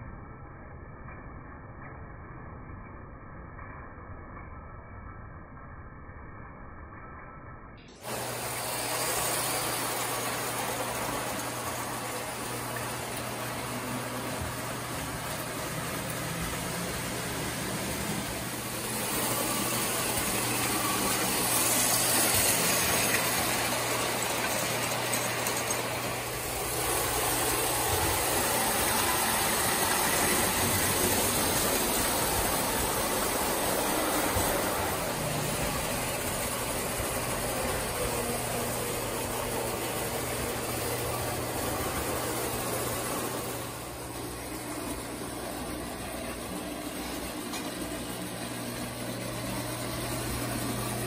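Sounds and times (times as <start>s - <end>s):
low hum: 0.0s - 9.4s
toy train motor whirring: 8.0s - 12.6s, 13.2s - 38.8s.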